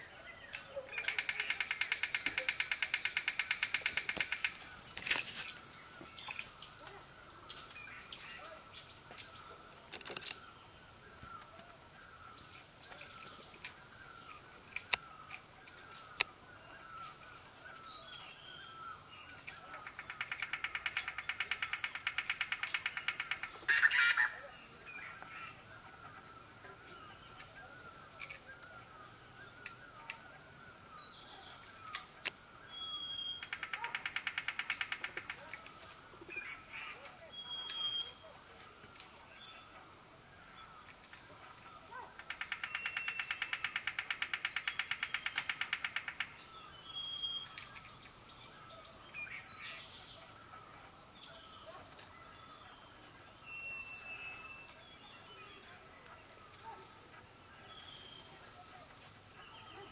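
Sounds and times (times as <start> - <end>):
faint bird chirps: 0.0 - 59.9
woodpecker tapping on bamboo: 0.5 - 5.4, 9.8 - 10.4, 19.4 - 23.6, 33.4 - 35.7, 42.2 - 46.4
birds chirping and whistling: 36.3 - 38.2, 44.5 - 50.1.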